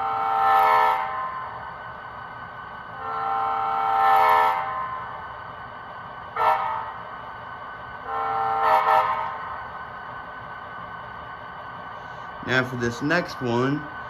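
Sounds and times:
model train horn blasts: 0:00.0 - 0:01.6, 0:03.0 - 0:05.2, 0:06.4 - 0:07.0, 0:08.0 - 0:09.5.

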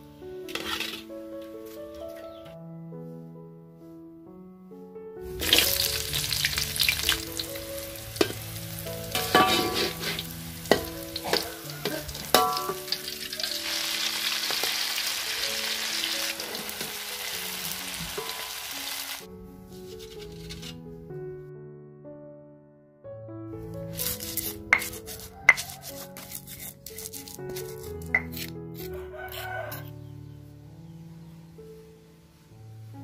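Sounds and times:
soft piano background music: 0:00.0 - 0:33.0
metal spatula scraping wok: 0:00.5 - 0:01.1, 0:05.3 - 0:20.9, 0:23.9 - 0:29.9
food sizzling in hot oil: 0:05.3 - 0:19.3.

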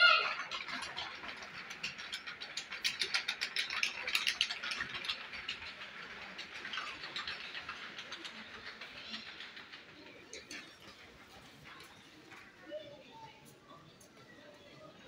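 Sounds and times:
rapid clicking rattle: 0:00.4 - 0:12.0.

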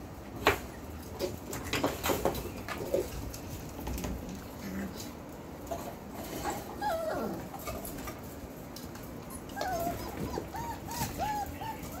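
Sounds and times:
puppies whining: 0:06.4 - 0:08.0, 0:09.2 - 0:12.0
puppies yipping: 0:09.2 - 0:12.0.

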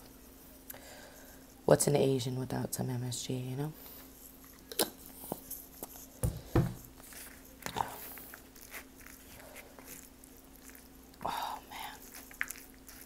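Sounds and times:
thuds: 0:06.2 - 0:06.8.

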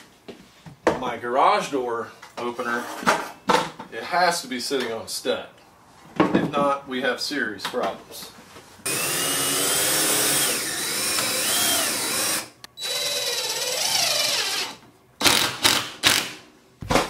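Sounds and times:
cordless drill driving screw: 0:08.9 - 0:16.3.

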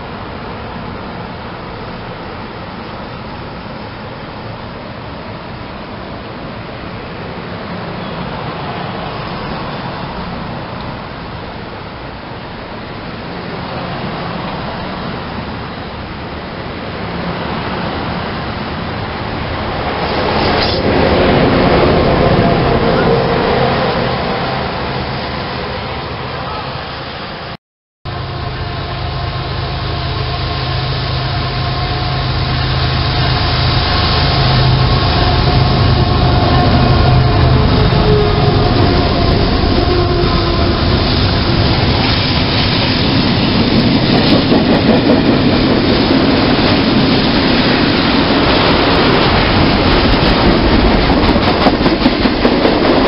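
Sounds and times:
train wheels rumbling on rails: 0:00.0 - 0:27.5, 0:28.1 - 0:53.0
diesel locomotive engine drone: 0:00.0 - 0:53.0.

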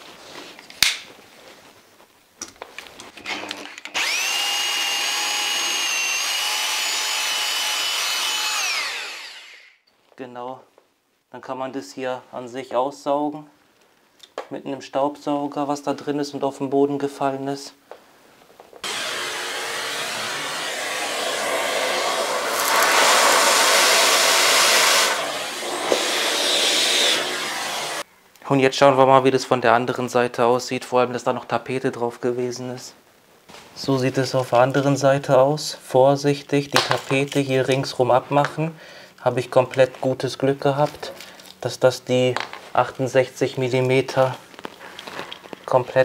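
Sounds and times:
drill motor whining: 0:03.2 - 0:09.8, 0:18.8 - 0:28.0
drill bit knocking: 0:03.9 - 0:09.6, 0:18.8 - 0:28.0
vacuum cleaner sucking dust: 0:03.9 - 0:09.8, 0:18.8 - 0:28.0.

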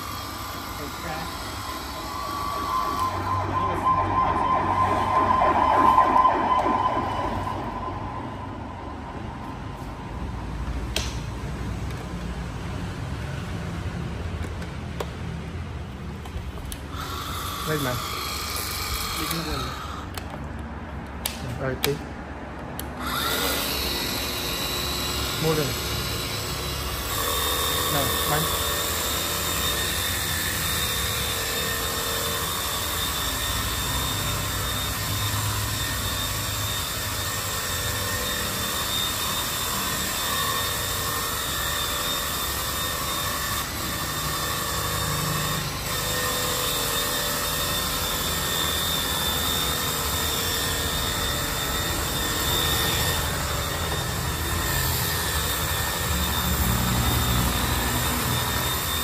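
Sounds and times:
pressure washer motor whine: 0:00.0 - 0:10.6, 0:23.0 - 0:59.0.

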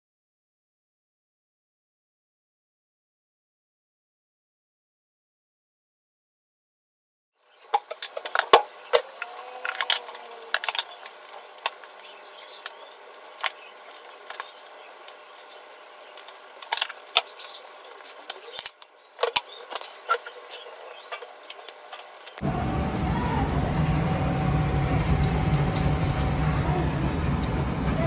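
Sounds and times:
cooking hiss: 0:07.5 - 0:22.4.

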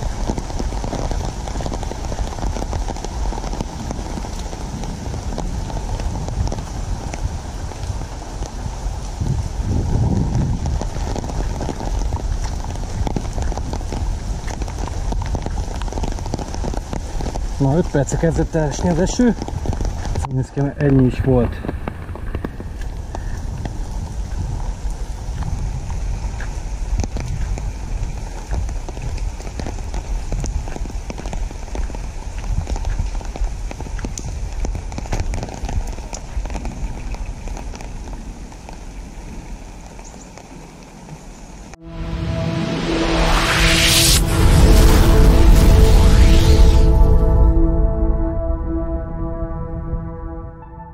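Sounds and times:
wind rumble on microphone: 0:00.0 - 0:40.7
raindrops ticking: 0:00.0 - 0:41.6
low rumble: 0:41.7 - 0:50.9.

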